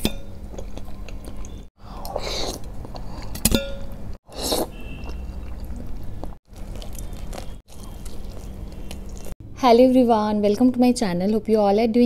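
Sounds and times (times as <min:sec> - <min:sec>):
fried chicken bitten and chewed: 0:04.3 - 0:09.4.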